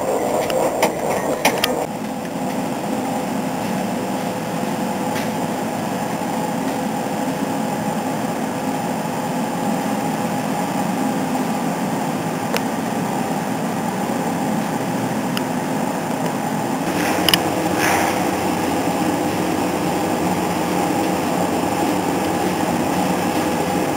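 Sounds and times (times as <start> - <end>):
machine hum: 0.0 - 23.9.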